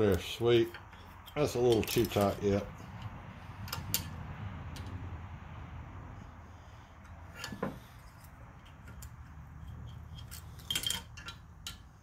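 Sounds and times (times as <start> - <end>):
hand tools clinking on metal: 0.0 - 3.1, 7.3 - 12.0.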